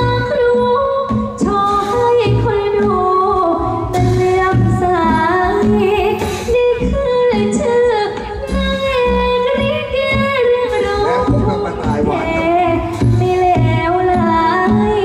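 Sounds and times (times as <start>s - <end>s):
backing music with steady beat: 0.0s - 15.0s
woman singing: 0.0s - 15.0s.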